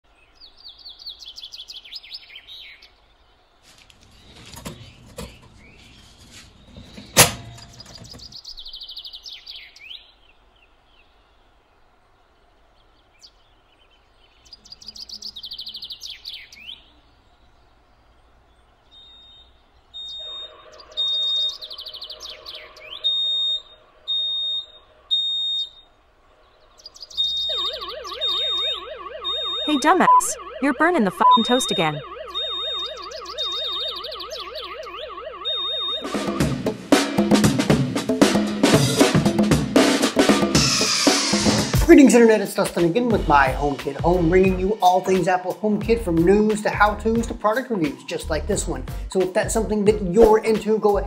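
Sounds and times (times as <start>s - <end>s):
songbirds chirping: 0.0s - 36.4s, 41.8s - 51.0s
smoke alarm beeping: 6.7s - 8.2s, 20.0s - 21.7s, 22.9s - 25.9s, 27.2s - 36.5s.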